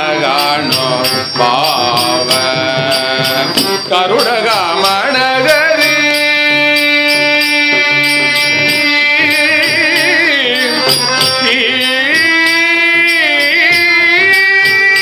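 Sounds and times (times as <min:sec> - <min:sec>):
man singing: 0:00.0 - 0:15.0
percussion beat: 0:00.0 - 0:15.0.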